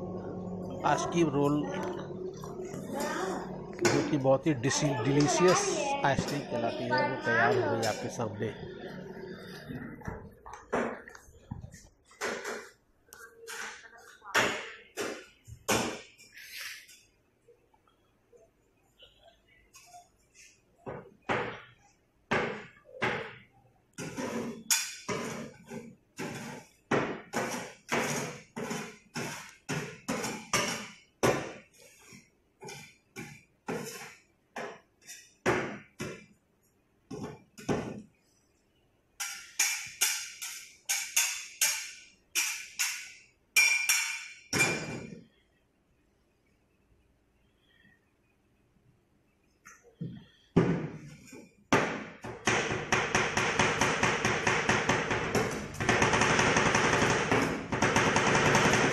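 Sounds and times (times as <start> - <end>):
metal spatulas striking steel plate: 39.2 - 44.9.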